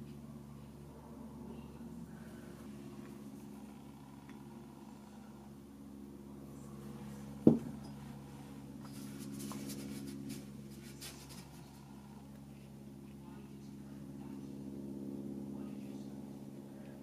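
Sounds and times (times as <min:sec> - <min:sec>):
steady low hum: 0:00.0 - 0:17.0
paintbrush strokes on paper: 0:08.9 - 0:11.6.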